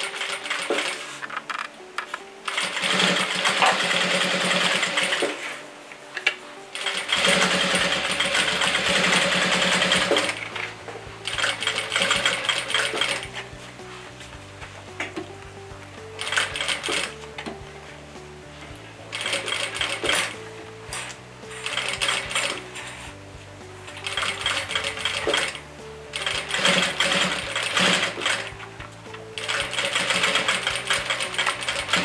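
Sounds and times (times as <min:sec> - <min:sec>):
sewing machine stitching: 0:00.0 - 0:01.2, 0:02.5 - 0:05.6, 0:06.8 - 0:10.7, 0:11.3 - 0:13.3, 0:16.2 - 0:17.2, 0:19.1 - 0:22.9, 0:24.0 - 0:28.5, 0:29.4 - 0:32.0.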